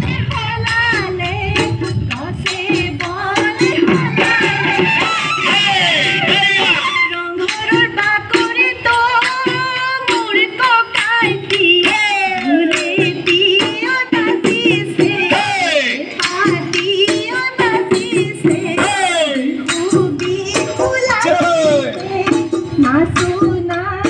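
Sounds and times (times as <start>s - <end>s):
quick drum beat: 0.0s - 24.0s.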